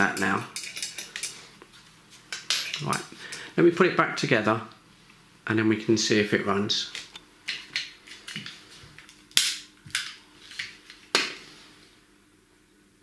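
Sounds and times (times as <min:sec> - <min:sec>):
metal parts clicking and knocking: 0:00.1 - 0:01.4.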